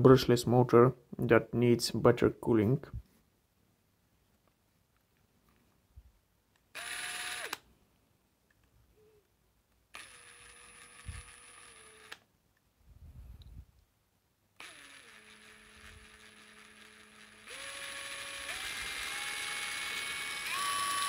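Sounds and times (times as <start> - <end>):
impact driver motor whine: 6.8 - 7.6, 10.0 - 12.2, 14.6 - 21.0.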